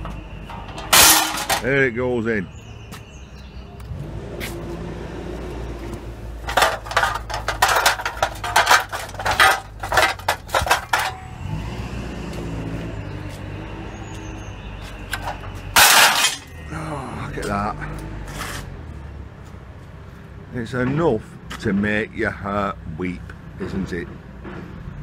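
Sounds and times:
scrap iron clanking: 0.0 - 1.9, 6.4 - 11.6, 15.0 - 16.7.

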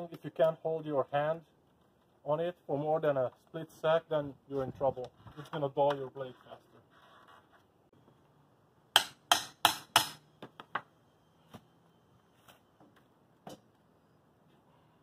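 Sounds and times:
hand tool striking wood siding: 9.0 - 10.6.

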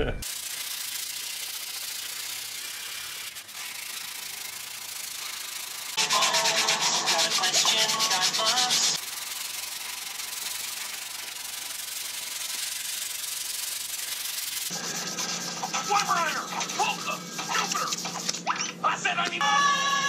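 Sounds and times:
sandpaper rubbing on wood: 0.2 - 18.6.

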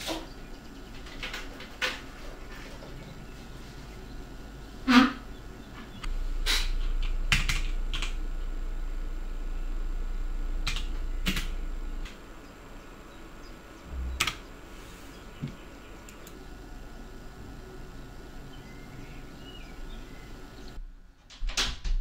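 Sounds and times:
steady low hum: 0.0 - 21.3.

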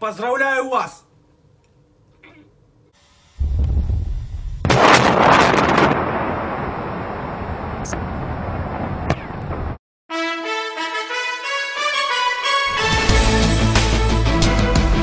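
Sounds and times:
large explosion: 3.4 - 9.8.

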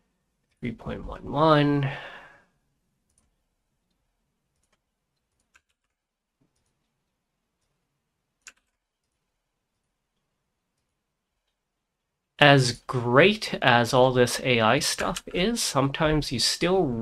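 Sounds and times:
mouse and keyboard clicks: 8.4 - 9.2.

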